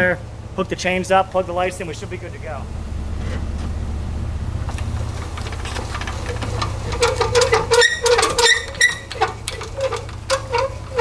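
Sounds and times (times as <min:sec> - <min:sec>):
pickup truck idling: 0:00.0 - 0:11.0
jack mechanism squeaking: 0:04.7 - 0:11.0.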